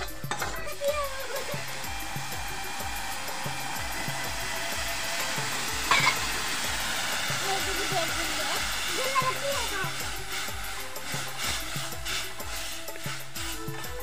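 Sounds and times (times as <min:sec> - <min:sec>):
background music with beat: 0:00.0 - 0:14.0
wok hissing and sizzling: 0:00.0 - 0:14.0
loud clank: 0:05.9 - 0:06.3.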